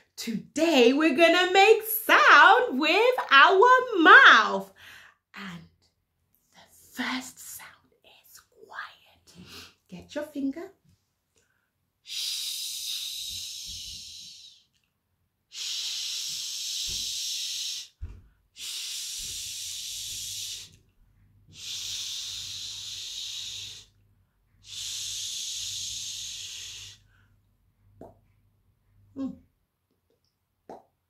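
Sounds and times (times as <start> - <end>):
woman shushing: 29.2 - 29.4.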